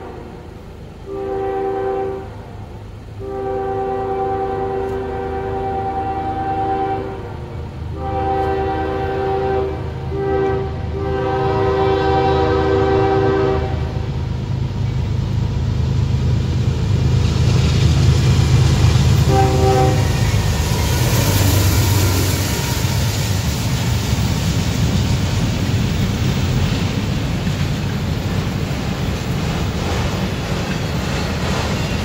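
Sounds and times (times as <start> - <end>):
locomotive air horn blasts: 0.0 - 14.2, 19.2 - 23.3
train wheel and rail noise: 0.0 - 32.0.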